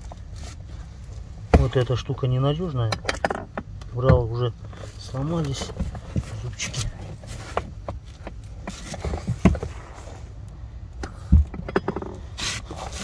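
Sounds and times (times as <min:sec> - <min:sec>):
metal clicks and knocks: 0:02.8 - 0:04.3, 0:11.3 - 0:12.2
heavy thumps: 0:11.1 - 0:12.2.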